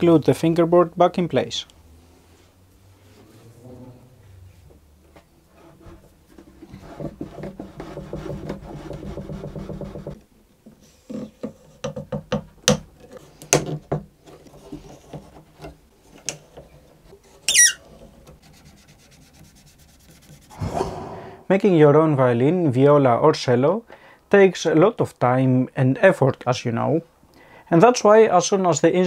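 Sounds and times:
wood-on-wood rubbing: 5.6s - 10.2s
short falling squeak: 17.5s - 17.8s.

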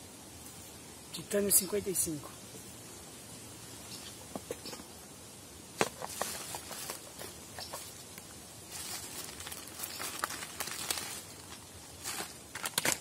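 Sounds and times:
plastic bag rustling: 5.8s - 8.0s, 8.6s - 13.0s.

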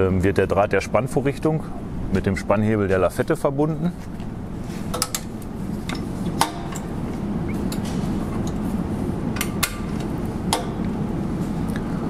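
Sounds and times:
steady low background noise: 0.0s - 12.0s.

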